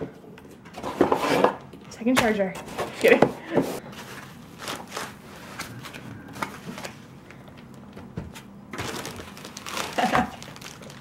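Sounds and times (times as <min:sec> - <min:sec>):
plastic bag rustling: 0:03.8 - 0:07.0, 0:08.7 - 0:11.0.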